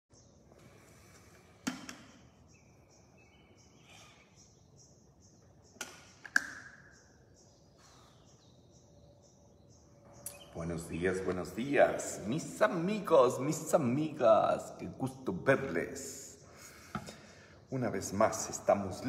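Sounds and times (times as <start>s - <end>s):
bird chirping: 0.1s - 19.0s.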